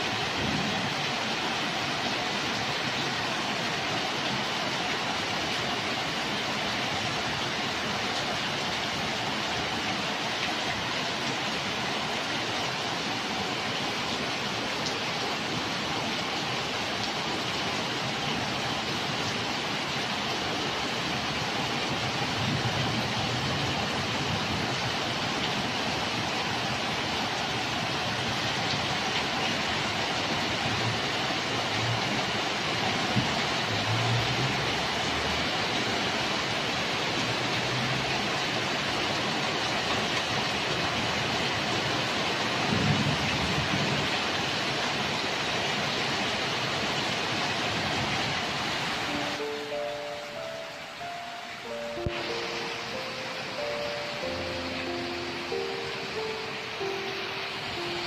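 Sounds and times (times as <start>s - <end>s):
heavy rain pouring: 0.0s - 58.0s
water streaming off roof: 0.0s - 58.0s.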